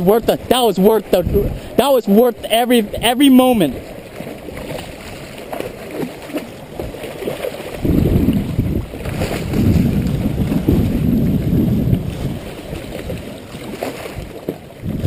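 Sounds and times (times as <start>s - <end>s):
fish splashing at surface: 4.0s - 11.0s.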